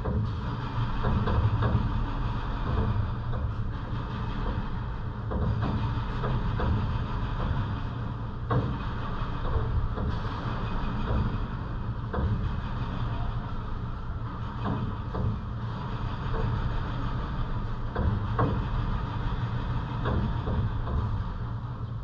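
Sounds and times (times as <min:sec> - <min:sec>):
low rumble: 0:00.0 - 0:22.0
steady rushing noise: 0:00.0 - 0:22.0.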